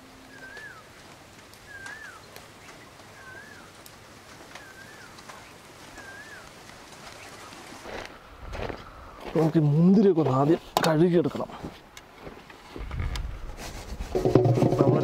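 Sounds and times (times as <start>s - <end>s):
faint background noise: 0.0s - 15.0s
bird whistling: 0.3s - 0.9s, 1.6s - 2.3s, 3.1s - 3.7s, 4.6s - 5.2s, 6.0s - 6.5s.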